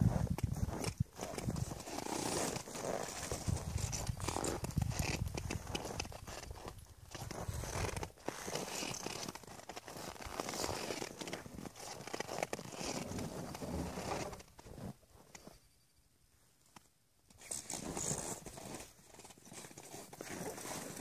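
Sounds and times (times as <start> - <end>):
footsteps crunching on snow: 0.0 - 14.3.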